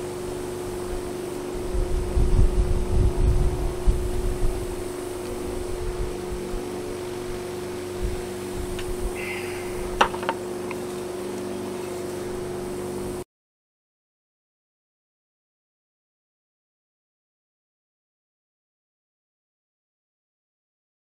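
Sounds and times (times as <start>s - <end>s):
electric motor humming: 0.0s - 13.2s.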